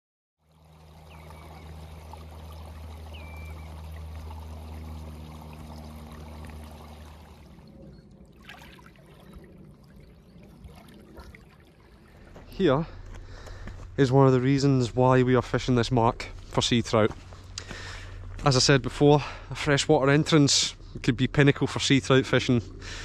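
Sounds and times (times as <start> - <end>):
stream trickling over stones: 0.4 - 13.1.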